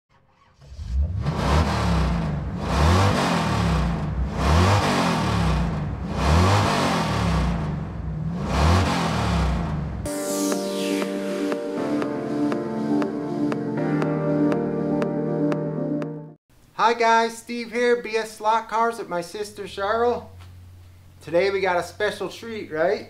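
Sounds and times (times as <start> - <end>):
music: 10.1 - 16.4.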